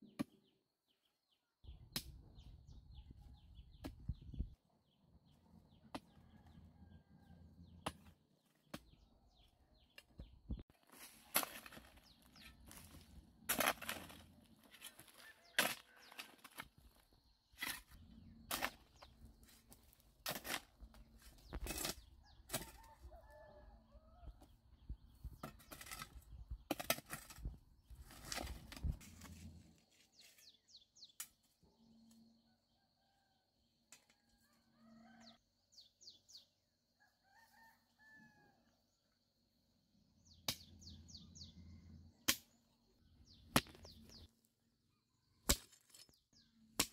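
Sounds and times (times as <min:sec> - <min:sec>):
hoe chopping into dry soil: 0:11.0 - 0:16.8.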